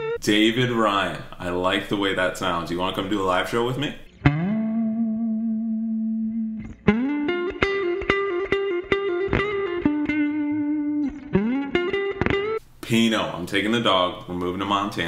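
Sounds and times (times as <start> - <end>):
electric guitar lead with bends: 0.0 - 0.2, 4.1 - 12.6.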